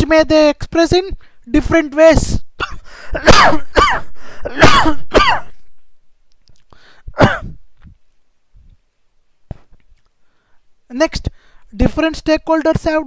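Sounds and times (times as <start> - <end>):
man clearing his throat: 2.6 - 5.6, 7.1 - 7.6.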